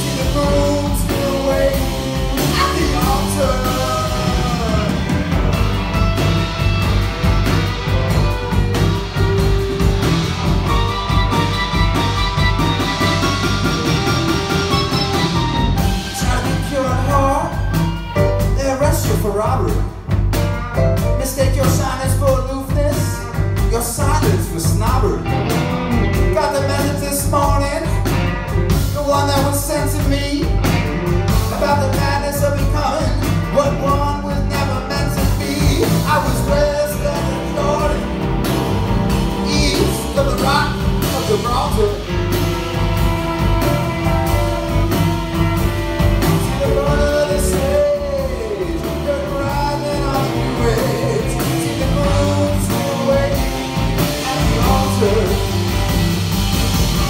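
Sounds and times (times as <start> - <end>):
man singing into microphone: 0.0 - 5.3, 16.0 - 17.7, 18.4 - 19.8, 21.2 - 25.2, 26.3 - 28.0, 28.9 - 30.6, 31.5 - 38.1, 39.4 - 42.1, 46.4 - 55.6
live rock band playing: 0.0 - 57.0.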